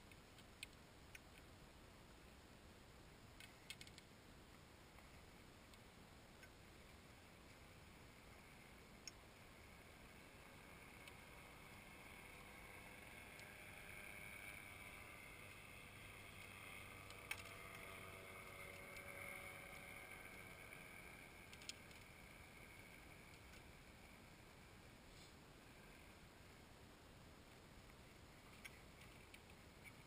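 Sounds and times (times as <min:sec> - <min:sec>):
small sharp clicks: 0:00.0 - 0:01.5, 0:03.3 - 0:06.6, 0:08.9 - 0:09.2, 0:10.7 - 0:24.2, 0:27.8 - 0:30.0
faint engine hum: 0:00.0 - 0:30.0.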